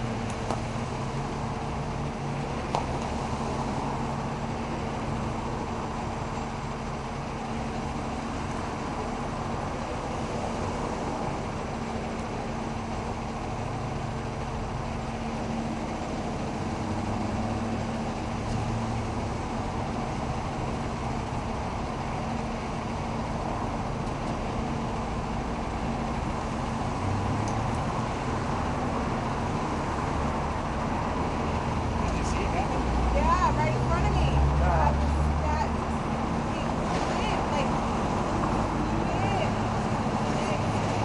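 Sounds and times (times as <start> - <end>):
road traffic noise: 0.0 - 41.0.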